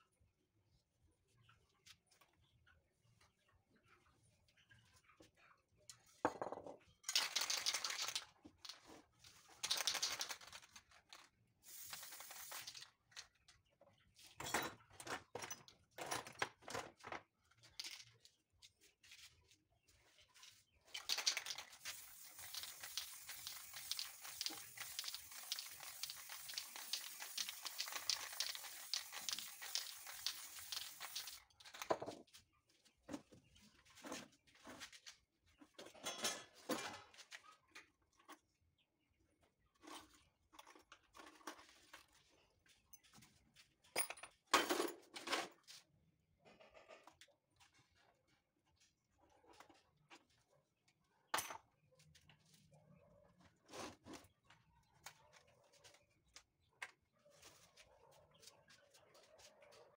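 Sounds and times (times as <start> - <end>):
paper rustling and crinkling: 21.0 - 31.4.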